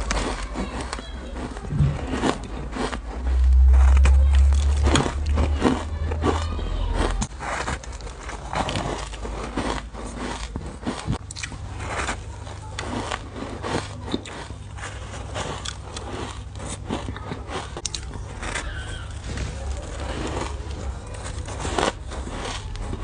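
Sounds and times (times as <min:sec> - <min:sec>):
crunching ice with teeth: 0:00.0 - 0:23.0.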